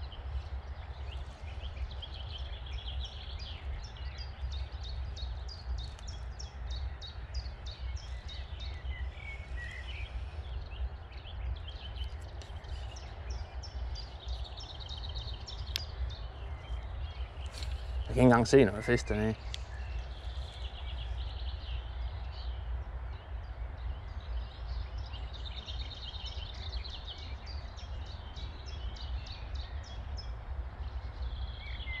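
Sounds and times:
steady rushing hiss: 0:00.0 - 0:23.7
wind rumbling on microphone: 0:00.0 - 0:32.0.

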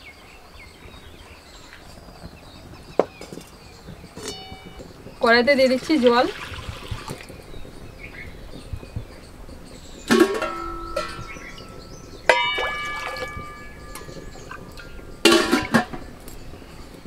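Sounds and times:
utensils clanking against wok: 0:02.9 - 0:17.0
water pouring into wok: 0:05.6 - 0:07.4, 0:12.3 - 0:15.9.

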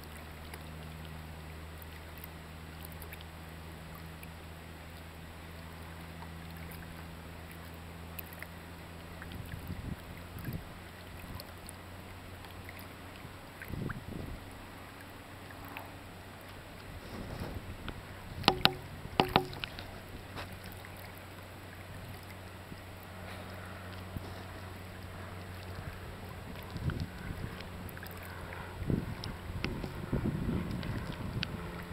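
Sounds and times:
water splashing and lapping: 0:00.0 - 0:31.9
sharp knocks: 0:18.5 - 0:19.7
boat engine idling: 0:18.5 - 0:30.2.

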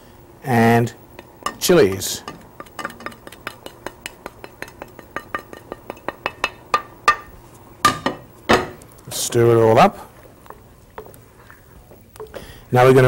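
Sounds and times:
utensil clinking against cookware: 0:01.2 - 0:08.8.

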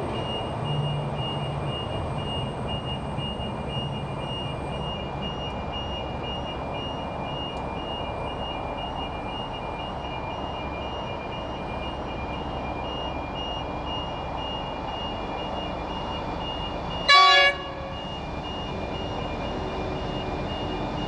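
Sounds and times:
train rumbling past: 0:00.0 - 0:10.0
level crossing warning bell beeping: 0:00.0 - 0:21.0.

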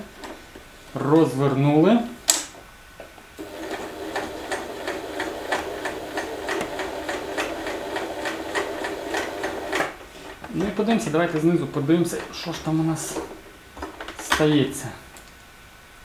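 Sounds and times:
sewing machine stitching: 0:03.4 - 0:10.0.

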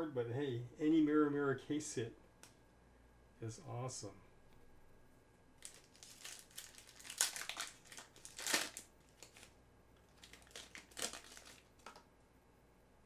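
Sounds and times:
foil wrapper crinkling: 0:05.6 - 0:12.0.

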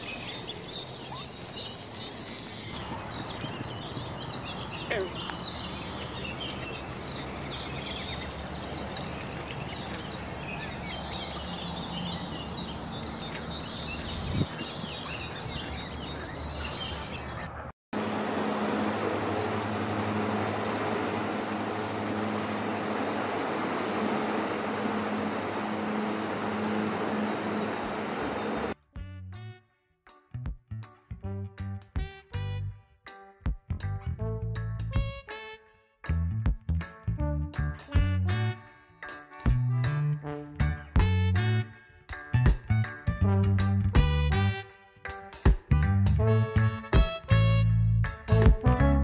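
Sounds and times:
songbirds chirping and warbling: 0:00.0 - 0:18.1, 0:19.2 - 0:28.8.

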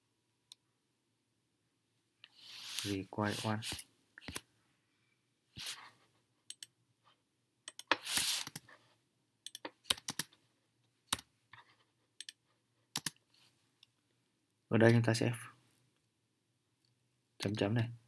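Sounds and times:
computer keyboard keystrokes: 0:09.5 - 0:10.3, 0:13.0 - 0:13.2.

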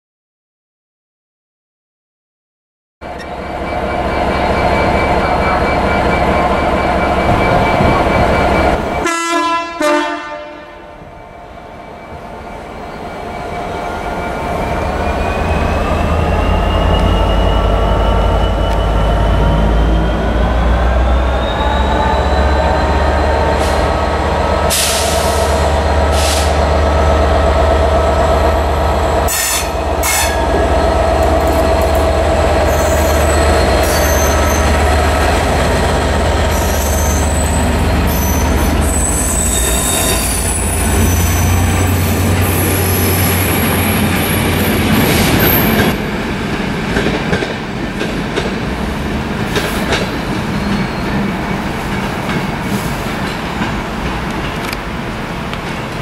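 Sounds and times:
diesel locomotive engine droning: 0:03.0 - 0:56.0
high wheel squeal: 0:03.1 - 0:09.1, 0:11.8 - 0:26.7, 0:29.2 - 0:30.6, 0:31.7 - 0:46.1, 0:50.2 - 0:51.8
coaches clicking over rail joints: 0:30.0 - 0:38.8, 0:39.5 - 0:56.0.

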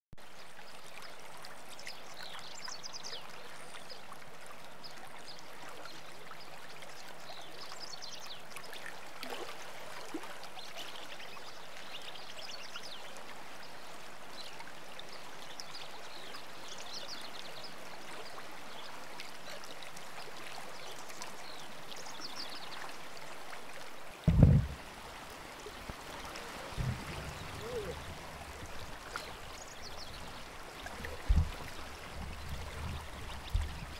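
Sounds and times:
flowing water rushing: 0:00.2 - 0:33.9
loud low thump: 0:24.2 - 0:24.8
soft knock: 0:24.3 - 0:24.8.

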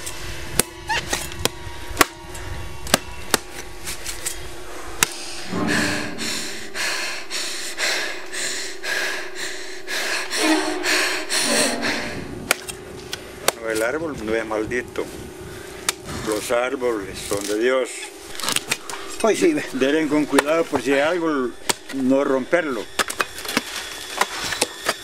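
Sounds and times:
woman breathing heavily with gasps: 0:05.2 - 0:12.6.

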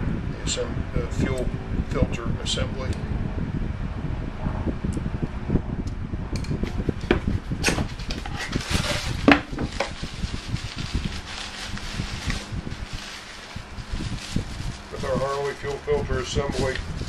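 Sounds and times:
steady fan-like hum: 0:00.0 - 0:17.0
rustling: 0:06.8 - 0:17.0.

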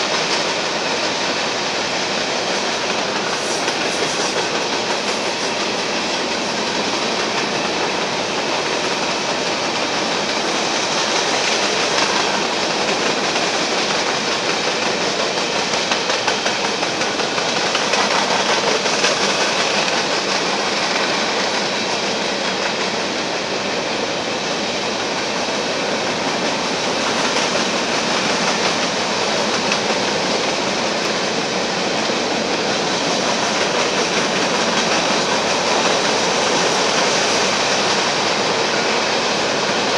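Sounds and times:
freight train wheels clattering: 0:00.0 - 0:39.9.

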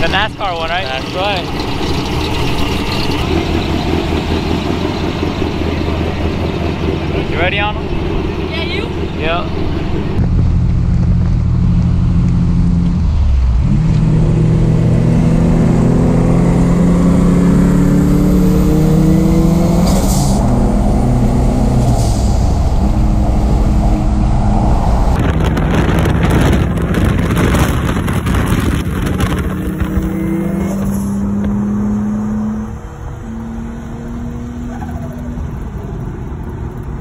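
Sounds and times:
truck driving past: 0:00.0 - 0:26.8
truck engine revving: 0:00.0 - 0:37.0.

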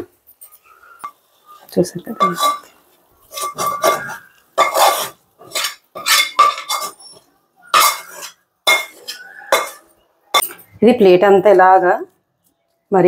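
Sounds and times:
metal spatula scraping a pan: 0:01.0 - 0:09.9.

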